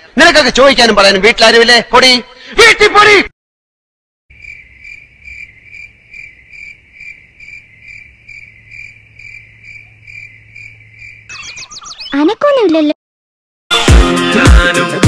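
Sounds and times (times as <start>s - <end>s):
cricket chirping: 4.3s - 11.9s.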